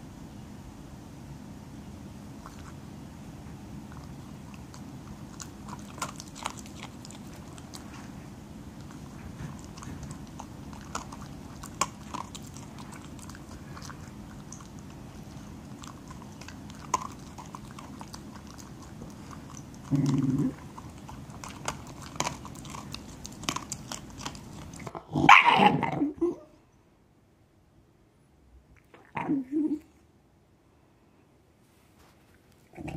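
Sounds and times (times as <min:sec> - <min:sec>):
steady low hum: 0:00.0 - 0:25.2
dog crunching dry kibble: 0:03.8 - 0:25.0.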